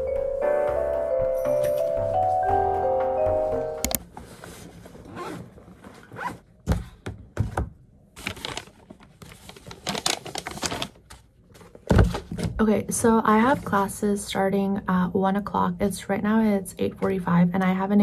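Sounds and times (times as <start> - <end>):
zipper being drawn open: 5.0 - 6.4.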